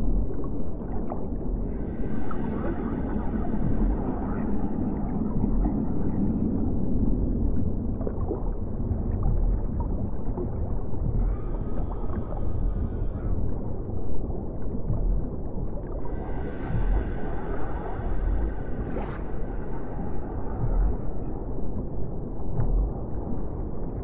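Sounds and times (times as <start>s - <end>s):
water rumbling and gurgling: 0.0s - 24.0s.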